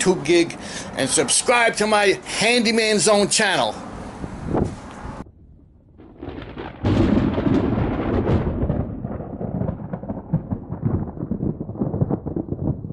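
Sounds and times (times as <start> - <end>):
thunder crash: 5.2 - 12.9
crackling rain: 6.0 - 12.9.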